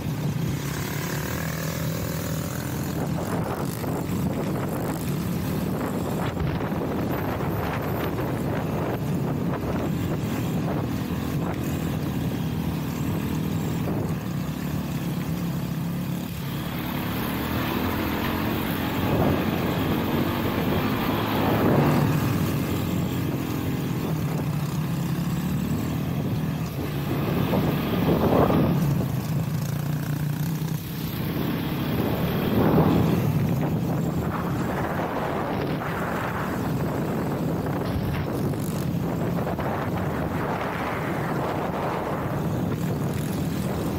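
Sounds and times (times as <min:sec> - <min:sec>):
motorcycle engine running: 0:00.0 - 0:43.9
engine throttle surges: 0:16.3 - 0:43.9.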